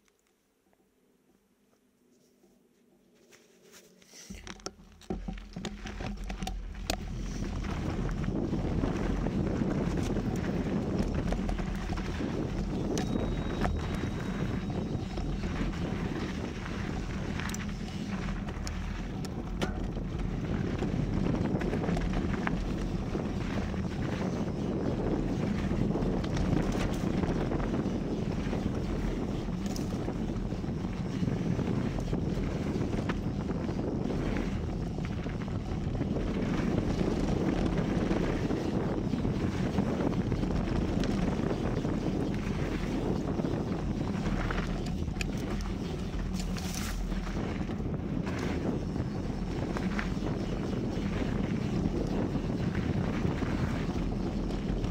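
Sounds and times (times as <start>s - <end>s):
bike rolling on dirt trail: 3.2s - 54.9s
bike clicks and rattles: 4.2s - 54.9s
faint clicks and rattles: 4.3s - 24.3s
wind on microphone: 4.3s - 54.9s.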